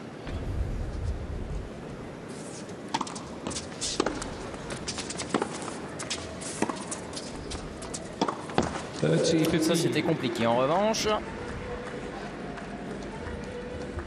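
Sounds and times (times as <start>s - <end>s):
footsteps and scuffs on court: 2.3s - 9.1s
tennis ball hit by racket: 2.9s - 7.0s, 8.2s - 8.8s.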